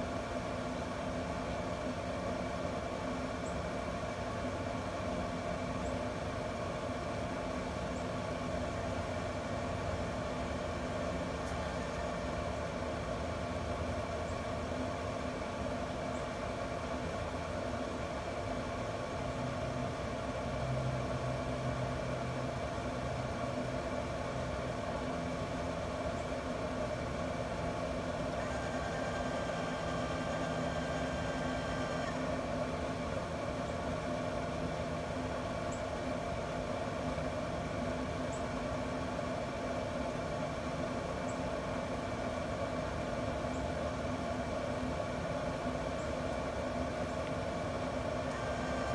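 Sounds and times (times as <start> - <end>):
grill fan hum: 0.0 - 48.9
auger motor running: 27.4 - 33.2, 48.0 - 48.9.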